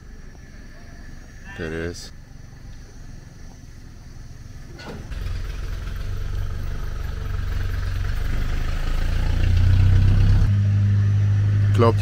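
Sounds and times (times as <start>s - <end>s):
vehicle engine running: 2.4s - 12.0s.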